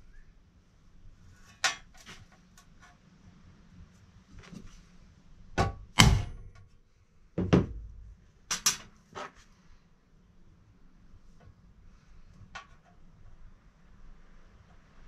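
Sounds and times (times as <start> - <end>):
metal knocks on steel workbench: 7.4 - 7.9.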